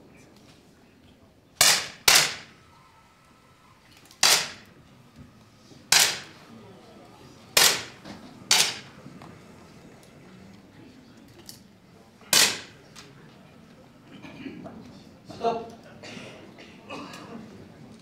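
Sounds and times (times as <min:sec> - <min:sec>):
air pistol shots: 0:01.6 - 0:02.6, 0:04.1 - 0:04.7, 0:05.9 - 0:06.4, 0:07.6 - 0:08.9, 0:12.3 - 0:12.8.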